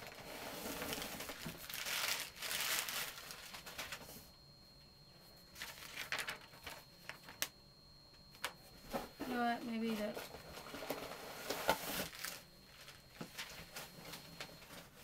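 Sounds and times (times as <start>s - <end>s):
packaging crinkling and rustling: 0.0s - 4.2s, 5.5s - 7.6s, 10.1s - 15.0s.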